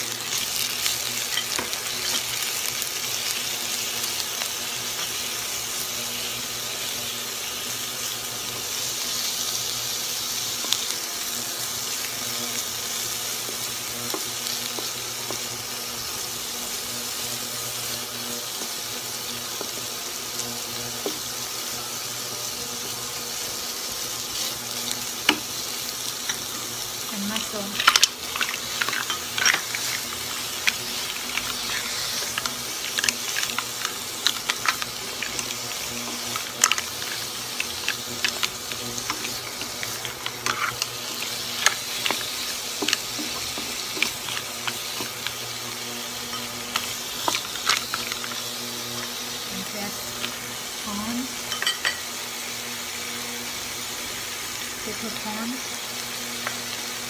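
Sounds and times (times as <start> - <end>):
shrimp sizzling in hot oil: 0.0 - 57.0
spatula stirring in wok: 24.2 - 48.9.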